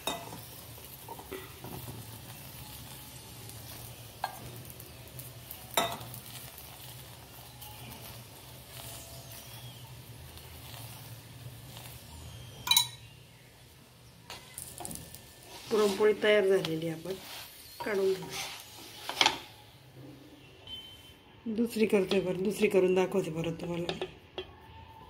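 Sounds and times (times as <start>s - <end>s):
ghee sizzling on a hot griddle: 0.0s - 20.1s, 20.9s - 25.0s.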